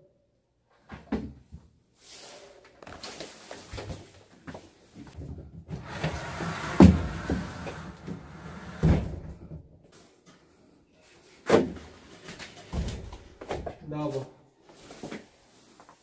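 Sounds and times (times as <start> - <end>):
furniture knocking and scraping: 5.1 - 9.5.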